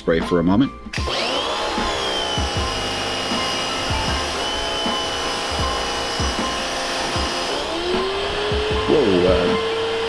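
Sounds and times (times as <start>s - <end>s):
pressure washer motor whine: 0.9s - 10.0s
low thumps: 1.8s - 9.7s.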